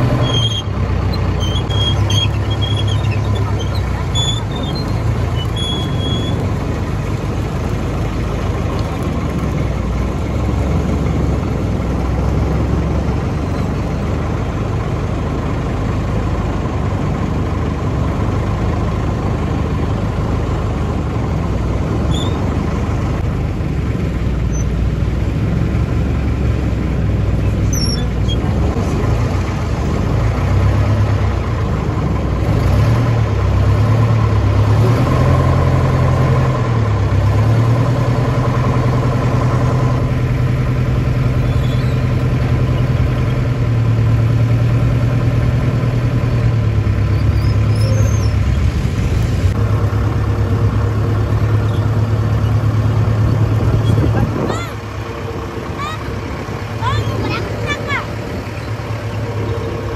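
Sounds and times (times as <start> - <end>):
engine running: 0.0 - 59.9
dense wash of noise: 48.4 - 51.4.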